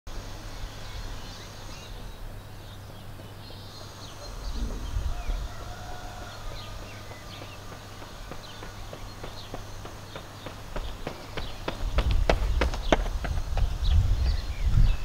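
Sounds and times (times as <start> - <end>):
steady low hum: 0.1 - 15.0
small birds chirping: 0.5 - 15.0
low rumble: 4.2 - 7.3.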